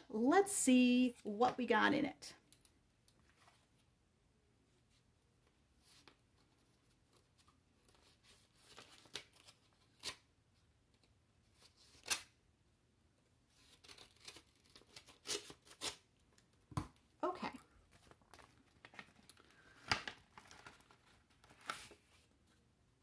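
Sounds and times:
paper envelope rustling: 17.9 - 22.4.

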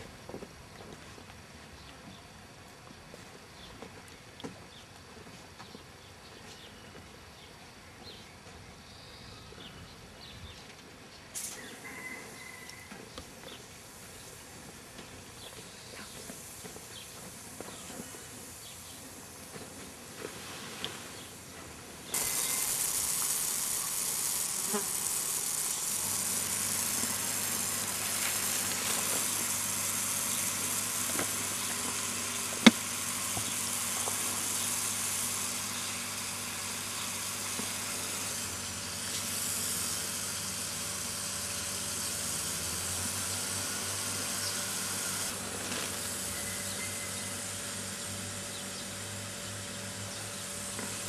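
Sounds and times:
hose nozzle spraying hiss: 12.6 - 21.5, 22.1 - 48.1.

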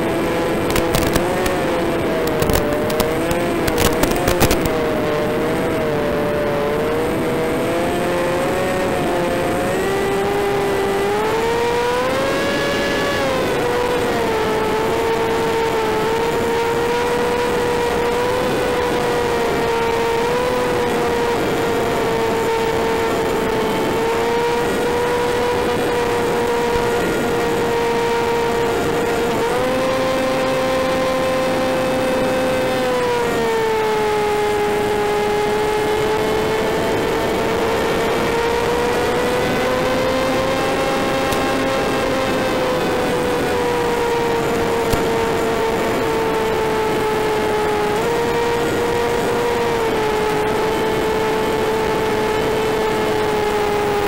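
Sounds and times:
electric motor and propeller whining: 0.0 - 54.0
sharp crackles: 0.6 - 4.9.

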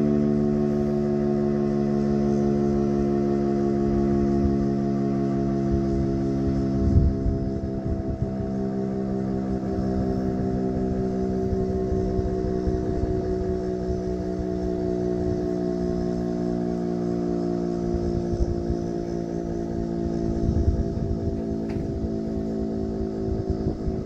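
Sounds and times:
warning siren chord: 0.0 - 24.0.

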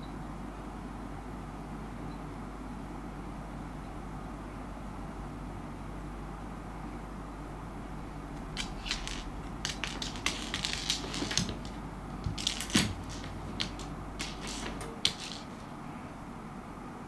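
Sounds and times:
seed clicking on wooden floor: 8.4 - 15.8.

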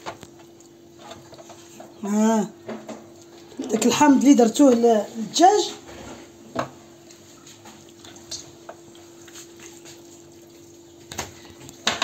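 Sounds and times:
wet squelching of hands: 7.0 - 11.8.

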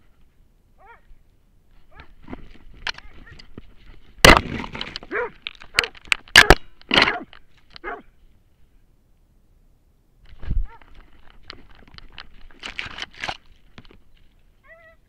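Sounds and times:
short yelps: 0.8 - 1.1, 5.1 - 8.1, 14.6 - 15.0
sharp cracks: 4.2 - 8.0.

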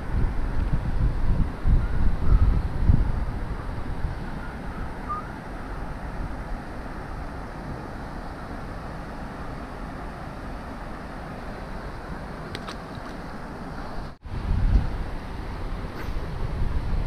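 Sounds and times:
wind buffeting microphone: 0.0 - 8.9, 13.8 - 17.0
water rushing from a weir: 0.0 - 17.0.

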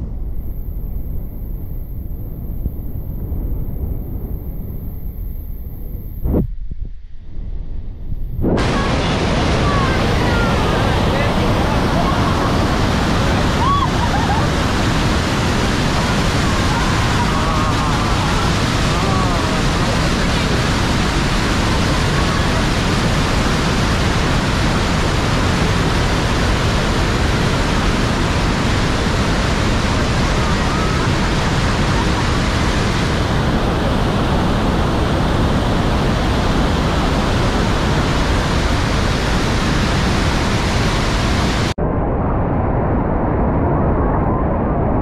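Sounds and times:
waterfall roaring: 8.4 - 41.8.

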